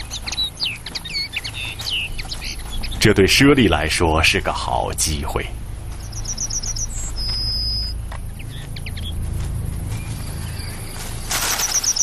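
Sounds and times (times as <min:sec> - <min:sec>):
low steady rumble: 0:00.0 - 0:12.0
small birds calling: 0:00.0 - 0:12.0
fast high bird trill: 0:10.1 - 0:12.0
high bird whistle: 0:11.4 - 0:12.0.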